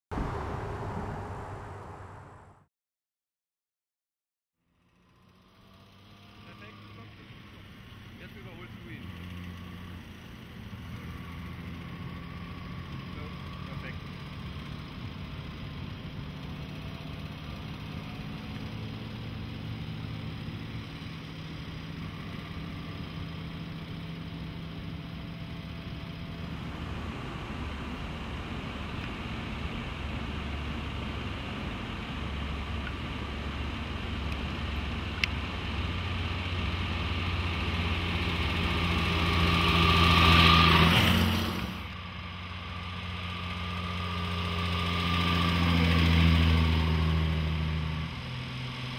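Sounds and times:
car engine running: 0:04.7 - 0:48.9.

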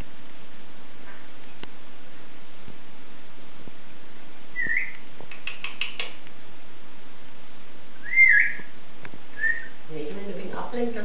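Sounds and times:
cockatoo rising whistle: 0:04.6 - 0:05.0, 0:08.0 - 0:08.7, 0:09.4 - 0:09.8
cockatoo clicking chirps: 0:04.6 - 0:06.3.

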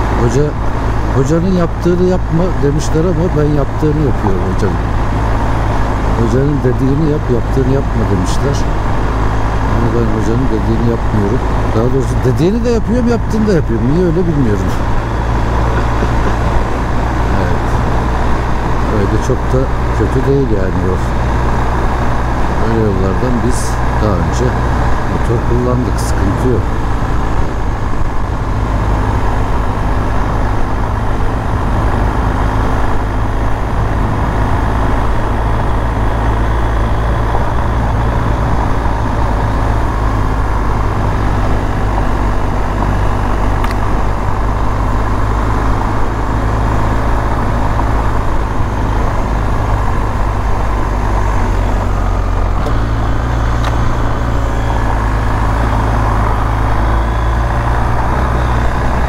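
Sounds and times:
motorcycle engine running: 0:00.0 - 0:59.0
road noise: 0:00.0 - 0:59.0.

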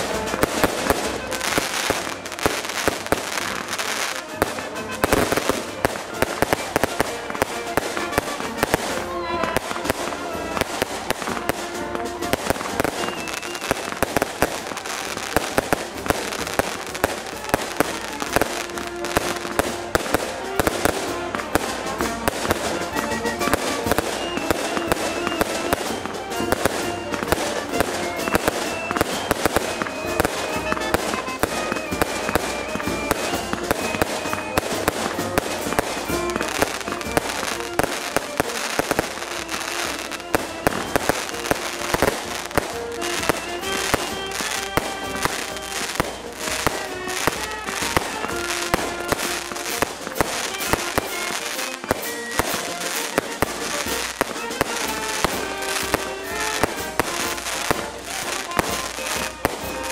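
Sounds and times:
fireworks bangs and crackling: 0:00.0 - 0:59.9.

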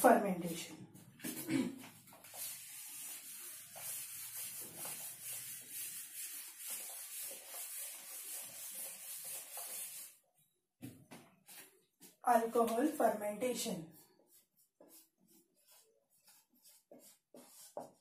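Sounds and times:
eraser rubbing on whiteboard: 0:01.2 - 0:10.2, 0:13.9 - 0:18.0.

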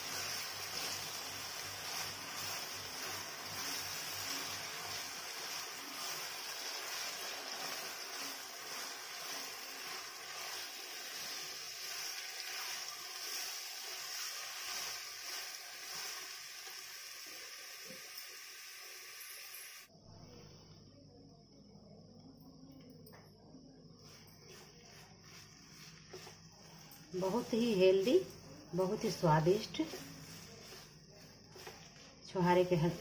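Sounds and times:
spatula stirring paste: 0:00.0 - 0:16.4, 0:24.0 - 0:33.0
ghee sizzling in pan: 0:00.0 - 0:19.9, 0:24.0 - 0:33.0.

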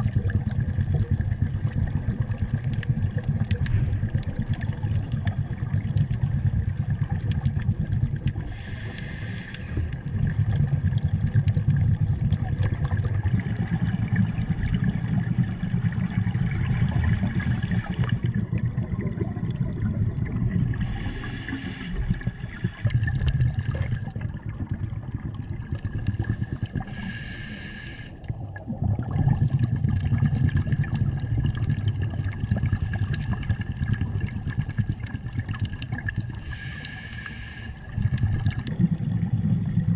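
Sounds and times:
bubble exhalations underwater: 0:00.0 - 0:09.0, 0:09.8 - 0:27.1, 0:28.2 - 0:36.6, 0:37.8 - 0:39.9
hissing regulator inhalation: 0:08.5 - 0:09.9, 0:17.3 - 0:18.2, 0:20.8 - 0:22.9, 0:26.8 - 0:28.2, 0:36.4 - 0:37.8.

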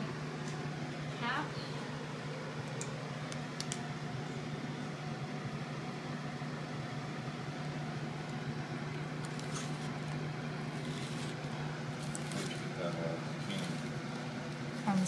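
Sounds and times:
vegetable slicer scraping: 0:10.7 - 0:11.4.

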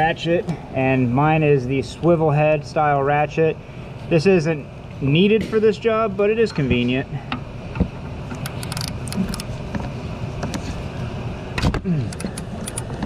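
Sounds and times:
ratchet clicking: 0:08.3 - 0:09.5.

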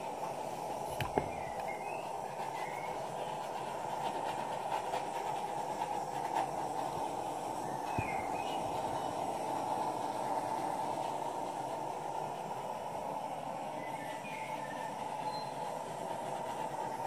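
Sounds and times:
hair dryer running: 0:00.0 - 0:02.2, 0:06.3 - 0:17.0.

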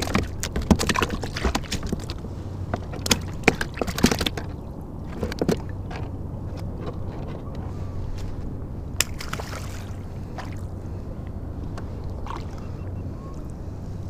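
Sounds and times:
water slapping against kayak hull: 0:00.0 - 0:07.0, 0:09.0 - 0:10.7
sharp knocks and clicks: 0:00.0 - 0:07.5.

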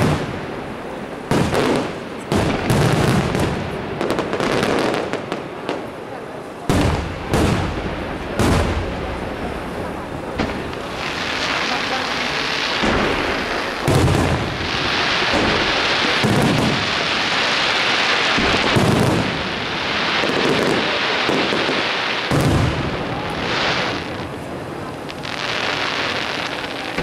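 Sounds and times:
fireworks booming: 0:00.0 - 0:27.0
hissing crackle of sparks: 0:10.0 - 0:27.0.

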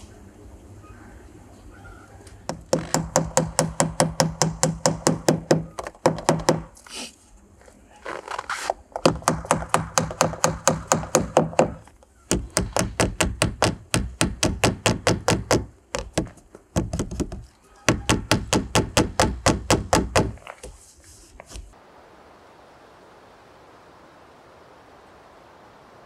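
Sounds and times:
rapid knocks: 0:02.5 - 0:06.7, 0:09.0 - 0:20.8.

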